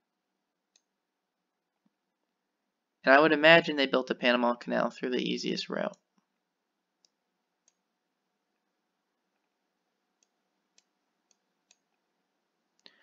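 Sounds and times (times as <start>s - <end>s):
faint computer mouse clicks: 7.0s - 7.9s, 10.2s - 12.0s.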